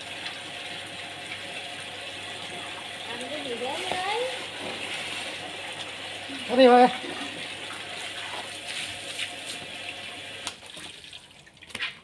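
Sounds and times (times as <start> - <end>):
hose water pouring into basin: 0.0 - 12.0
small water splashes: 6.9 - 12.0.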